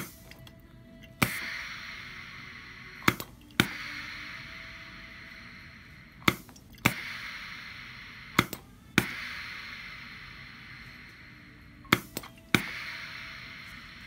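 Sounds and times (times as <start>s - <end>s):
pump hiss: 0.0s - 0.4s, 1.2s - 14.0s
pump sharp clicks: 0.0s - 1.7s, 3.0s - 4.0s.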